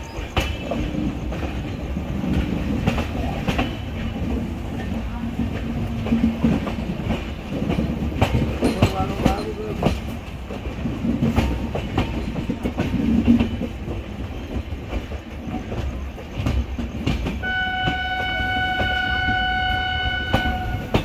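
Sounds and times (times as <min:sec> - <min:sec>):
train rolling rumble: 0:00.0 - 0:21.0
wheels clacking over rail joints: 0:00.0 - 0:21.0
locomotive horn blast: 0:17.4 - 0:21.0.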